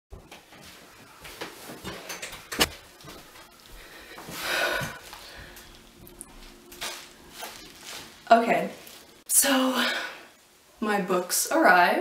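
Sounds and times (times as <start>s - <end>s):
clothing rustle: 0.3s - 9.3s.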